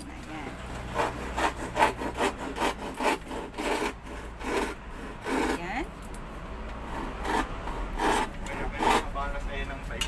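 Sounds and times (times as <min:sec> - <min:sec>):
rasping scraping strokes: 0:00.6 - 0:05.9, 0:06.8 - 0:09.4.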